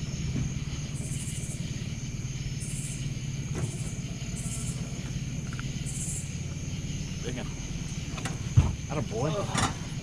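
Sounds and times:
insect buzzing: 0.0 - 10.0.

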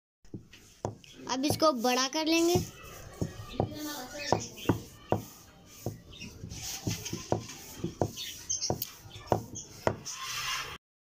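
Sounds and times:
rolling pin knocking on board: 2.5 - 6.1, 6.8 - 10.0.

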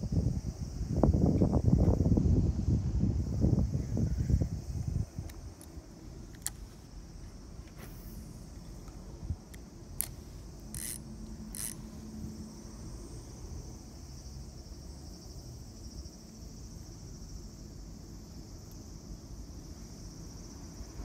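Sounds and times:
small sharp clicks: 5.2 - 6.7, 8.8 - 11.8
short rasps: 10.0 - 12.0.

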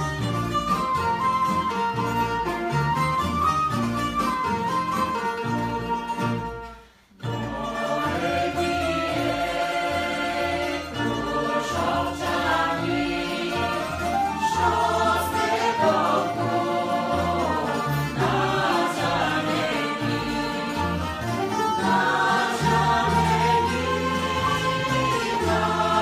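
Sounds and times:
plucked lutes: 0.0 - 26.0
choir singing folk song: 7.2 - 26.0.

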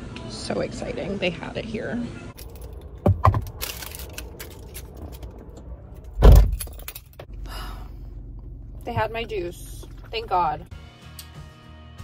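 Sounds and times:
steady low hum: 2.1 - 10.7
car keys jangling: 2.4 - 7.3
loud heavy thump: 3.0 - 3.6, 6.1 - 6.8.

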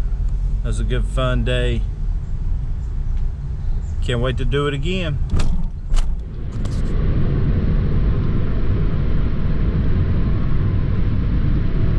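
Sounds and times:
car interior road rumble: 0.0 - 11.9.

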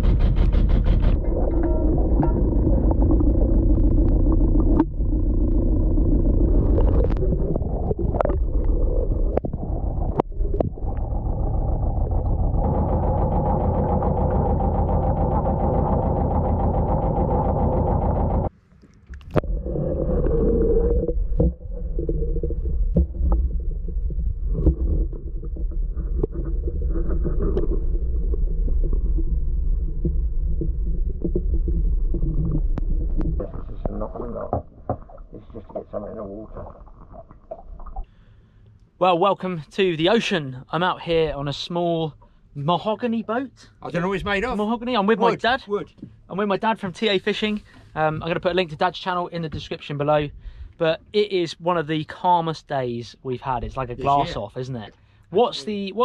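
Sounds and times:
boat engine running: 0.0 - 18.6.

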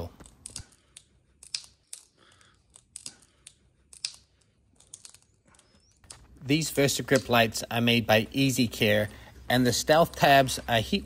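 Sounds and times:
glue bond clicking and crackling: 0.0 - 6.4.

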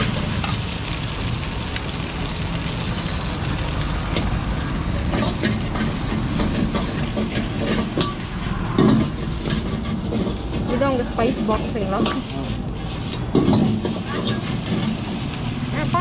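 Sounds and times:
steady low rumble: 0.0 - 15.9
metal ladle scraping a wok: 5.1 - 15.4.

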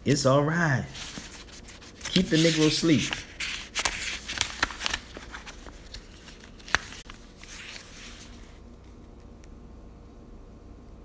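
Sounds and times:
paper rustling: 0.9 - 9.0.

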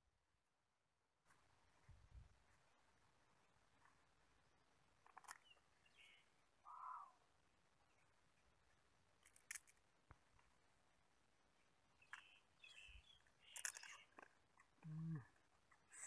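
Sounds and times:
handling rustles and clicks: 5.0 - 5.6, 9.2 - 10.6, 13.2 - 14.8.

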